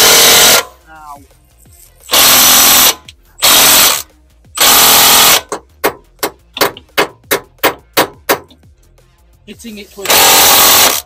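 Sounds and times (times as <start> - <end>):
hammer striking: 5.4 - 8.6.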